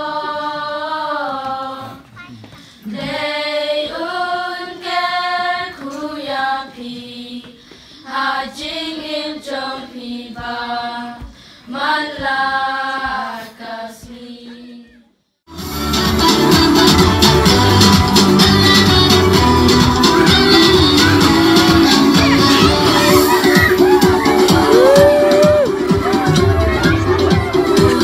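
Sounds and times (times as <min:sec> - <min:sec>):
children singing together: 0:00.0 - 0:02.2, 0:02.8 - 0:15.0.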